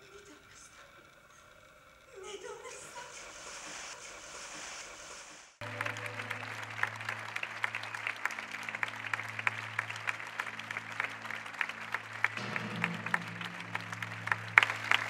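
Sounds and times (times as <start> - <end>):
audience applauding: 5.6 - 15.0
music holding a low note: 5.6 - 15.0.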